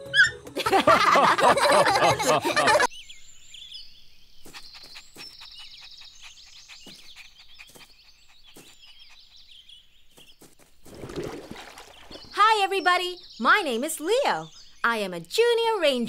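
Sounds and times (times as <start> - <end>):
cartoon characters laughing: 0.6 - 2.9
small birds chirping: 2.8 - 16.0.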